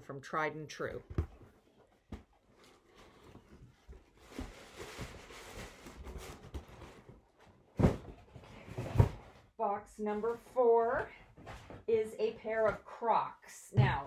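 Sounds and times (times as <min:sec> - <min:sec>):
box thumping down: 0:07.7 - 0:09.3.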